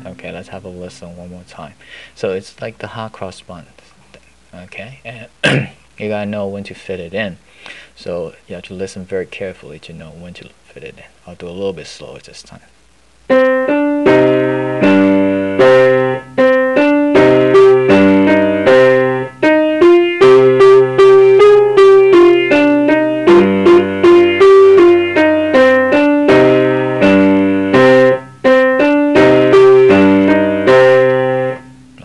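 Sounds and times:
slow piano piece: 0:13.3 - 0:32.0.

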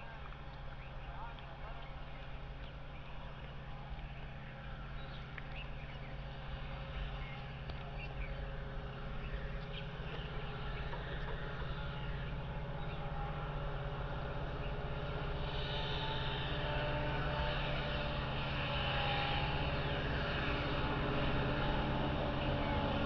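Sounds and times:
small birds chirping: 0:00.0 - 0:13.0
distant diesel locomotive engine drone: 0:00.0 - 0:23.0.

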